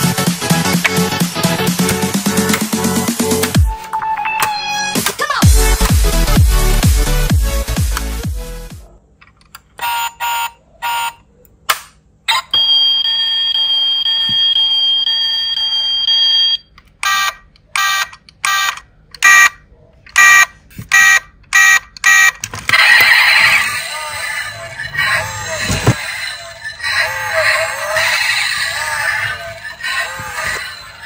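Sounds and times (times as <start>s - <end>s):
electronic alarm beeps: 12.3s - 19.6s, 20.2s - 22.4s.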